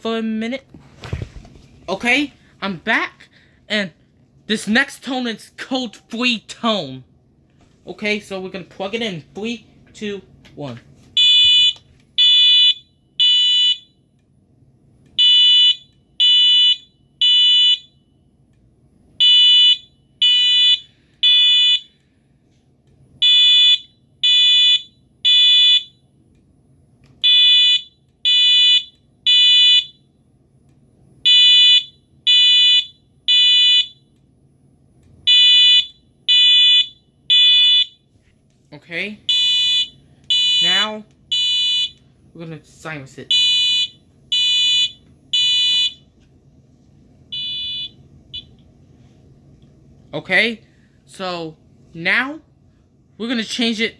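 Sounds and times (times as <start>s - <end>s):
fire alarm beeps: 11.2s - 14.1s, 15.2s - 18.3s, 19.2s - 22.0s, 23.2s - 26.1s, 27.2s - 30.1s, 31.2s - 34.1s, 35.3s - 38.1s, 39.3s - 42.0s, 43.3s - 46.0s, 47.3s - 48.6s.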